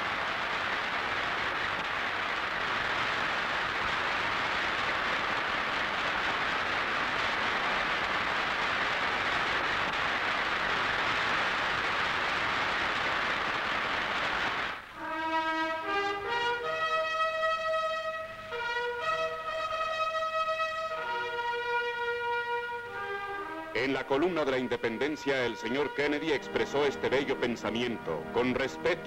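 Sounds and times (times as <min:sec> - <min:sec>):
audience applauding: 0:00.0 - 0:16.4, 0:23.8 - 0:29.0
brass music with trumpets: 0:00.0 - 0:29.0.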